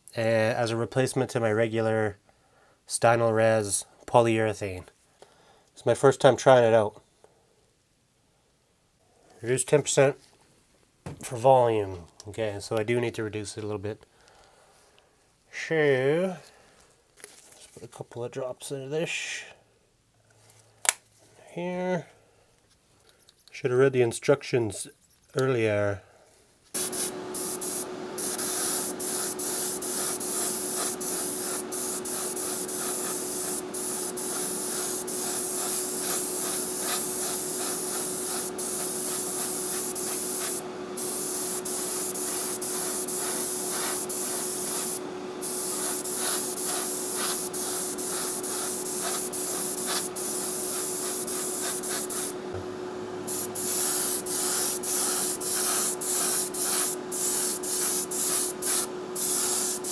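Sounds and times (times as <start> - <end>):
airbrush spraying hiss: 26.8 - 52.4, 53.3 - 59.9
steady hum: 26.8 - 59.9.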